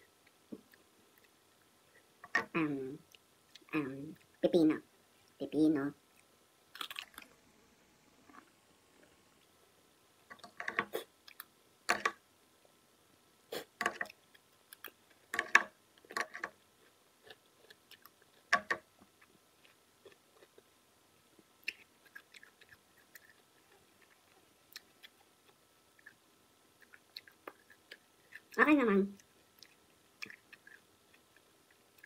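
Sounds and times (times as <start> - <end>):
cucumber crunching being chewed: 6.7 - 7.3, 29.2 - 32.0.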